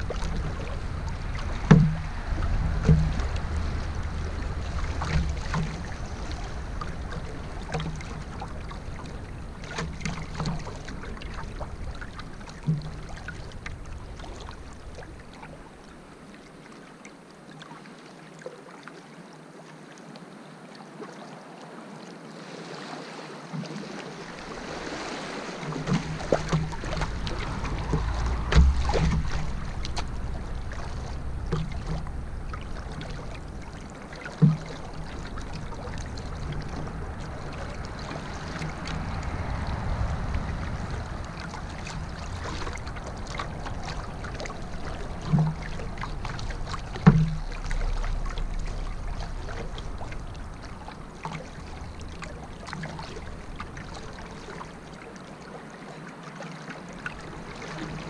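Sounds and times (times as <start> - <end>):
low rumble: 0.0 - 9.7, 26.0 - 53.8
knocks and splashes at canoe hull: 0.0 - 15.6, 22.7 - 55.5
moving river water: 0.0 - 58.0.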